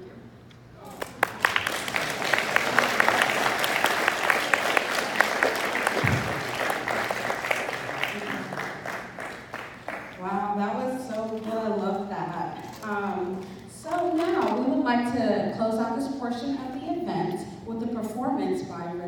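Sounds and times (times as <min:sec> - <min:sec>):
audience applauding: 0:00.9 - 0:10.3.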